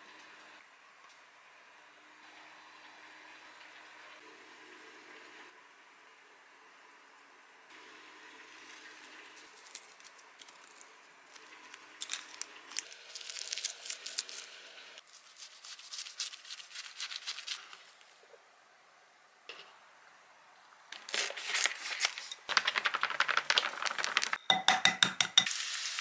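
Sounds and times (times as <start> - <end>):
seaweed sheet crackling: 9.4 - 17.9, 21.0 - 24.4.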